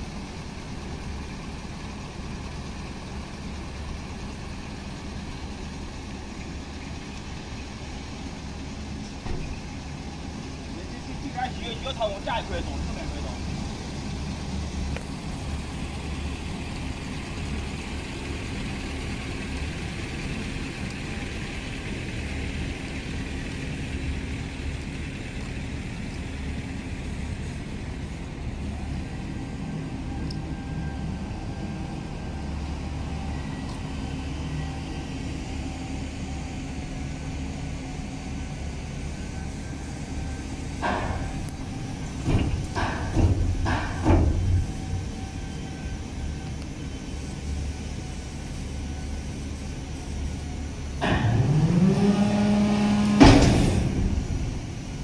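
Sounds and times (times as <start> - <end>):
diesel truck engine running: 0.0 - 55.0
hydraulic whine: 27.0 - 55.0
sharp knocks: 42.1 - 44.6.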